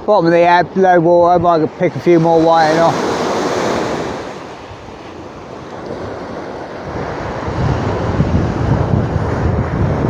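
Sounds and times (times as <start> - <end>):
wind buffeting microphone: 0.0 - 10.0
small waves breaking: 1.7 - 9.6.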